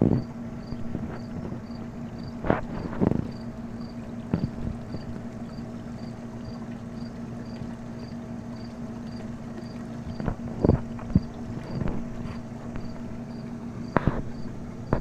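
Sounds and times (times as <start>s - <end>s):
steady low hum: 0.0s - 15.0s
insect chirping: 0.2s - 2.4s, 12.8s - 15.0s.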